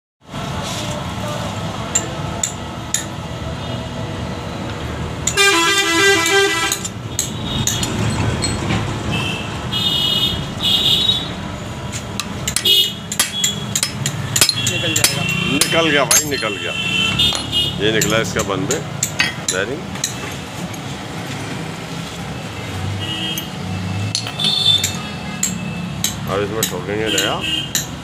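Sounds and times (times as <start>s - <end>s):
street traffic rumble: 0.2s - 28.0s
vehicle horn warbling: 5.3s - 7.7s.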